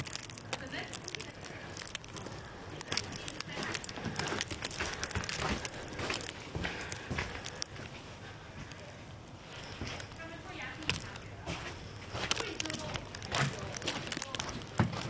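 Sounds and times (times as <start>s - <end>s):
faint voices: 0.0s - 15.0s.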